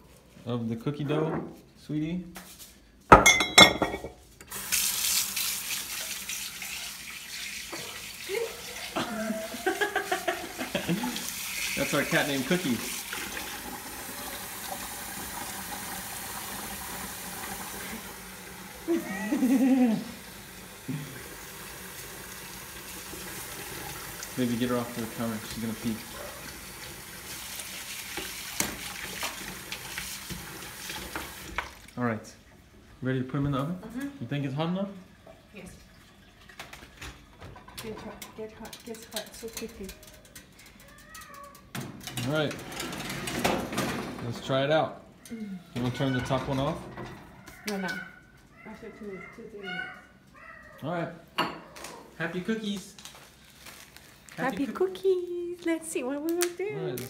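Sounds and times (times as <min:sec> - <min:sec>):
tap water running into sink: 0:04.5 - 0:32.0.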